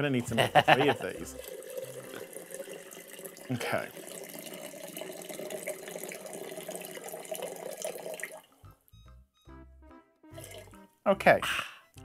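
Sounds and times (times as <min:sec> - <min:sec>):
water pouring into glass jar: 0:00.2 - 0:08.6, 0:10.4 - 0:10.8.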